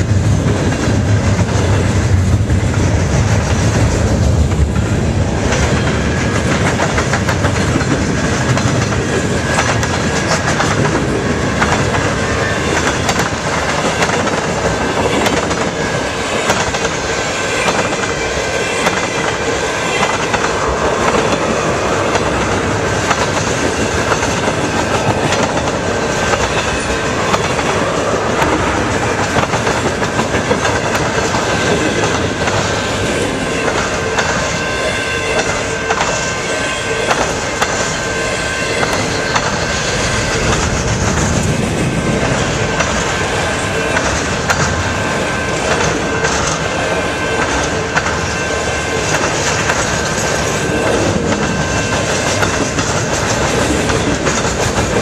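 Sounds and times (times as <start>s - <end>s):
train wheels clicking over rail joints: 0.0s - 55.0s.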